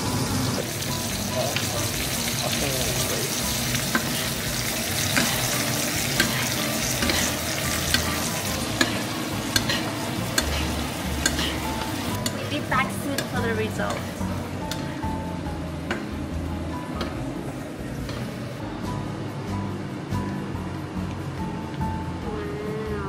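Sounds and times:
steak sizzling in a frying pan: 0:00.0 - 0:14.8
metal spoon basting: 0:03.4 - 0:14.9.

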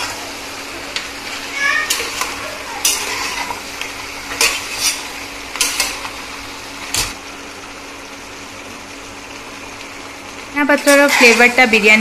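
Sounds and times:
metal spoon clanking in pot: 0:01.9 - 0:03.6.

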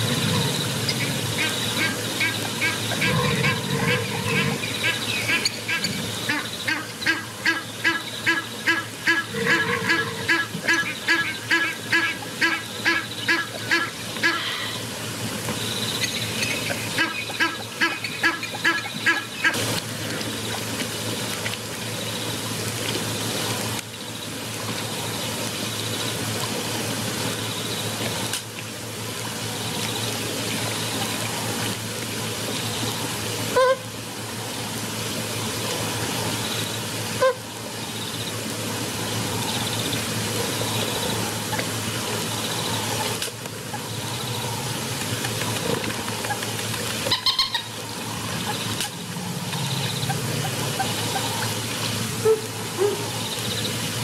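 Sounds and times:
outdoor waterhole noise: 0:00.0 - 0:54.0
bird honking: 0:01.4 - 0:14.8, 0:16.9 - 0:19.6, 0:33.6 - 0:33.8, 0:37.2 - 0:37.4, 0:47.1 - 0:47.7.

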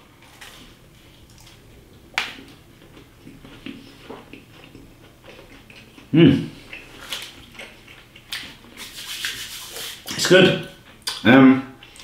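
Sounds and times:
person chewing: 0:00.2 - 0:11.2.

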